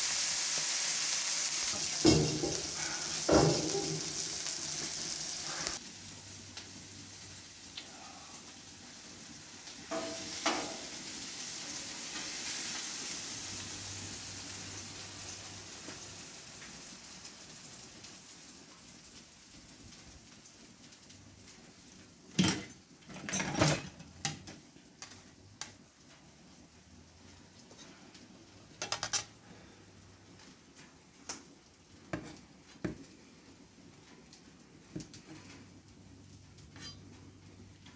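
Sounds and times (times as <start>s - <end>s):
patties sizzling on a griddle: 0.0s - 23.0s, 24.0s - 37.9s
metal spatulas clanking and scraping: 36.7s - 37.0s.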